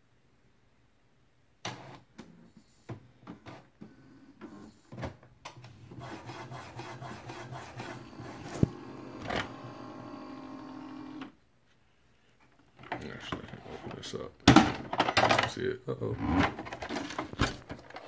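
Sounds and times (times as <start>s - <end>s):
printer motors humming: 5.6s - 11.4s
printer clicks: 7.4s - 11.3s.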